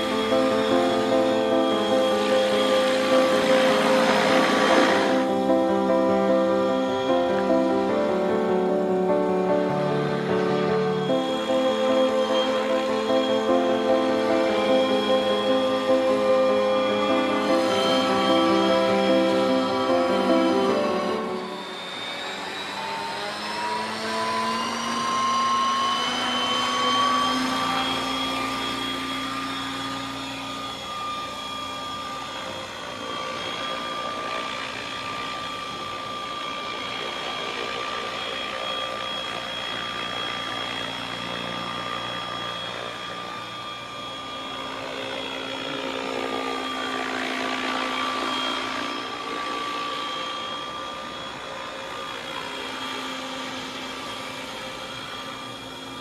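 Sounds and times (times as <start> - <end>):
rc helicopter rotor whine: 0.0 - 56.0.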